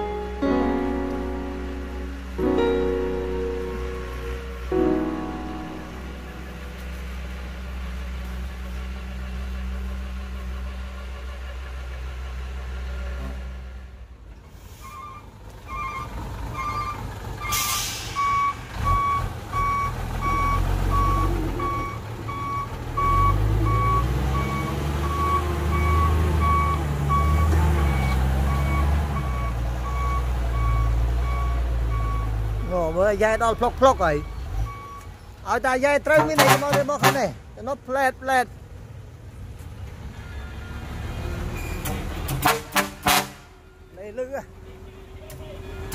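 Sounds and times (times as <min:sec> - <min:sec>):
truck reversing beeper: 0:00.0 - 0:08.2, 0:14.6 - 0:35.3, 0:40.0 - 0:42.4, 0:43.5 - 0:45.9
bulldozer diesel engine: 0:00.0 - 0:45.9.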